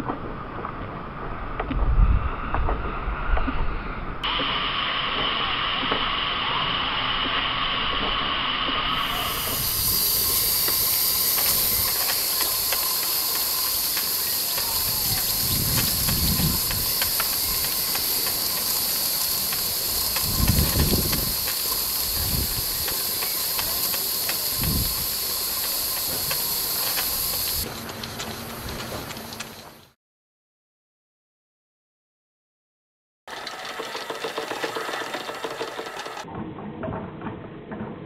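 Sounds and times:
steam hissing: 4.2s - 30.0s, 33.3s - 36.3s
light mechanical ticking: 9.4s - 29.6s.

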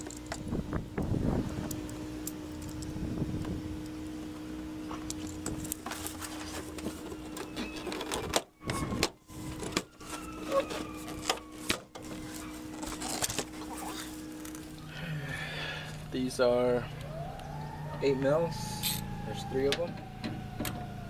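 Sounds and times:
steady low hum: 0.0s - 21.0s
handling and rubbing of door panel: 4.9s - 14.4s.

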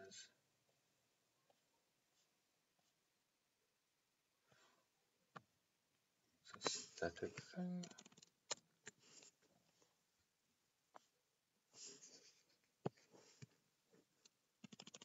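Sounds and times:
soft breath: 4.4s - 4.9s
mouse and keyboard clicks: 7.8s - 9.0s, 14.2s - 15.0s.

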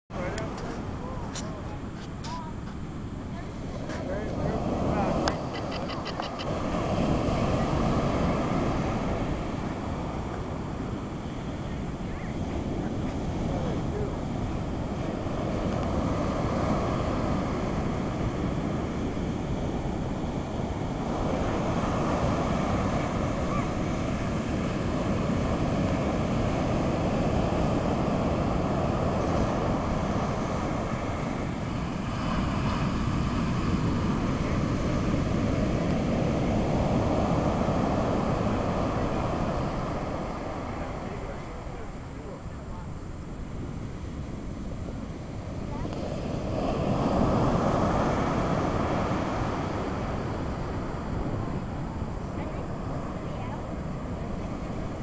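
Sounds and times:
ocean surf breaking: 0.1s - 55.0s
wind rumbling on microphone: 0.1s - 55.0s.

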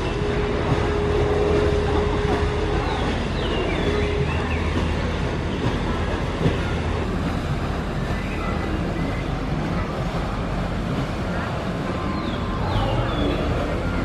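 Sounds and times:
low hum: 0.0s - 14.0s
murmur of distant voices: 0.0s - 14.0s.

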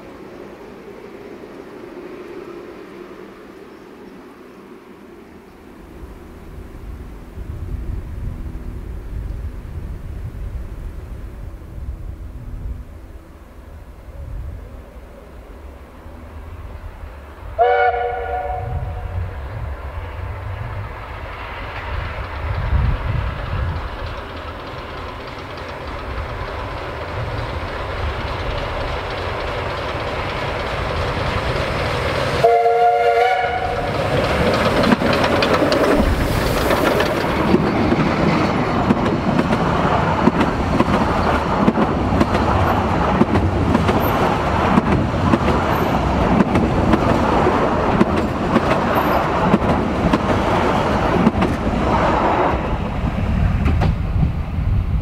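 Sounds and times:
locomotive rumble: 0.0s - 55.0s
steam locomotive whistle: 17.6s - 19.2s, 32.4s - 34.0s
wheels knocking on rails: 21.7s - 52.0s.

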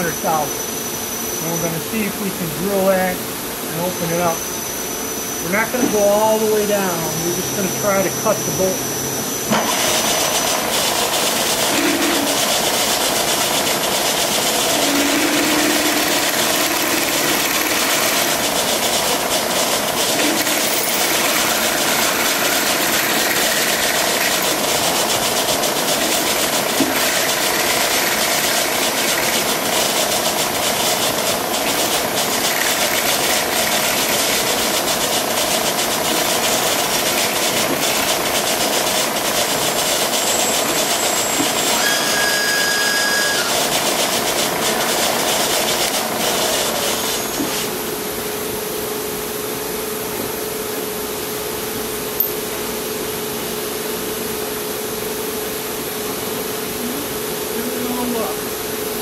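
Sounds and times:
drill spindle whirring and cutting: 3.8s - 47.8s
short high squeal: 40.2s - 43.7s.

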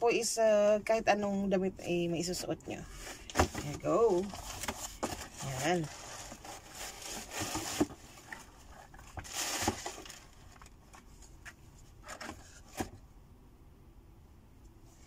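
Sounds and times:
tissue paper rustling: 2.9s - 11.2s.

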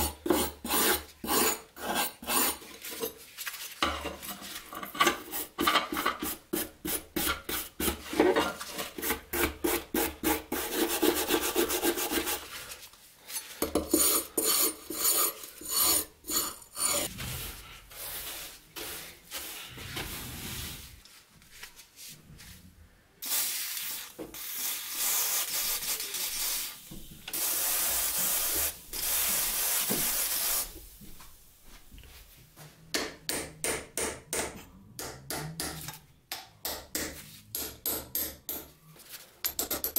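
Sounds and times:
blade scraping rust: 13.3s - 18.3s
wire brush scrubbing metal: 13.9s - 19.8s.

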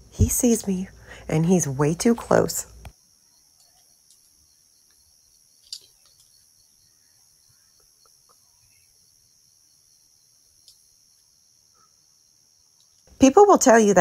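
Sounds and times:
crickets chirring: 0.0s - 14.0s
faint ticks: 10.6s - 11.3s.

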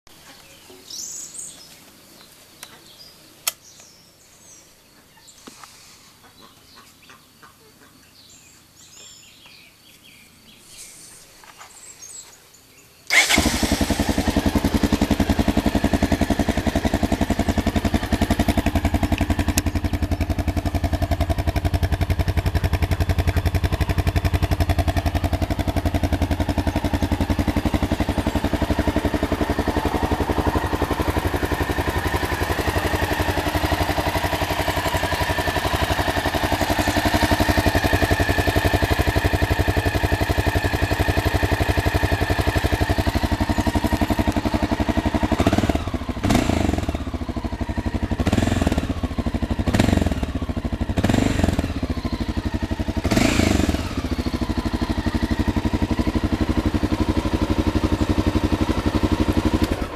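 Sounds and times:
faint bird chirps: 0.1s - 13.1s, 16.8s - 29.7s
motorcycle engine idling: 13.1s - 59.9s.

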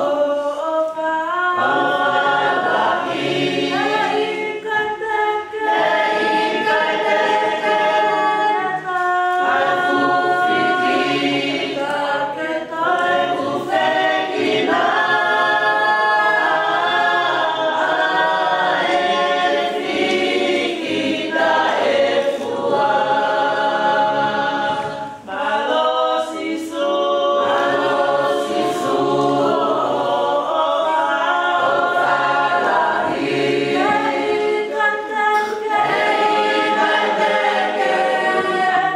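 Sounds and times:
choir singing a hymn: 0.0s - 38.9s.

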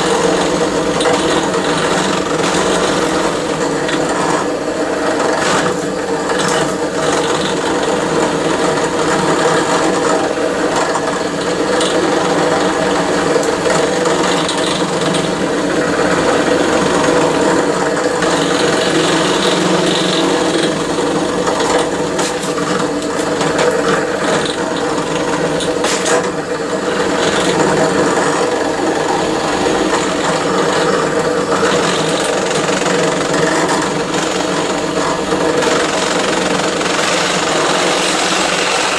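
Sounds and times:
power tool cutting metal: 11.6s - 38.9s.

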